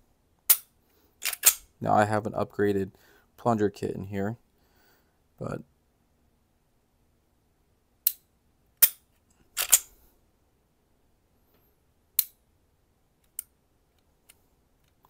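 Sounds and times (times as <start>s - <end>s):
pistol mechanical clicks: 0.5s - 1.7s, 9.6s - 9.9s, 12.2s - 12.4s.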